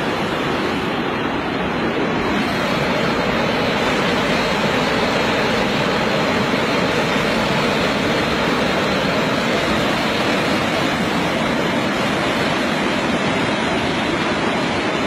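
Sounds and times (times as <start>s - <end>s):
fast-flowing river water rushing: 0.0s - 15.0s.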